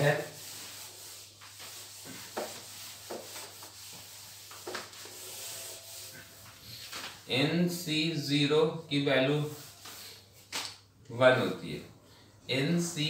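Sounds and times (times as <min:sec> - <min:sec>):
eraser scrubbing whiteboard: 0:00.0 - 0:07.8, 0:09.4 - 0:10.3.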